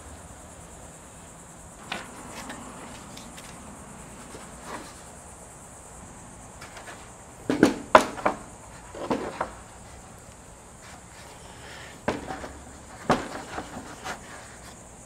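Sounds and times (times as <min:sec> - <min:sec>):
steady high-pitched hiss: 0:00.0 - 0:15.0
styrofoam cooler knocks and thumps: 0:07.5 - 0:09.6, 0:12.0 - 0:13.9.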